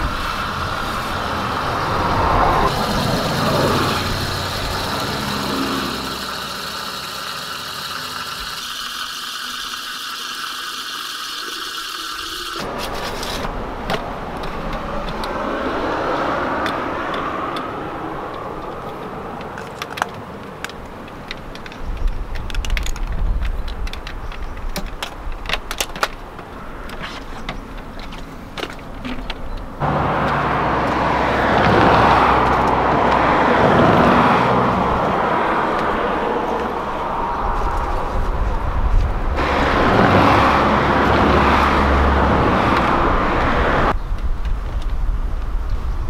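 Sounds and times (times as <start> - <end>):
car passing: 0.0 - 7.8, 12.7 - 19.8, 29.8 - 44.0
tap water running into tank: 2.7 - 12.7.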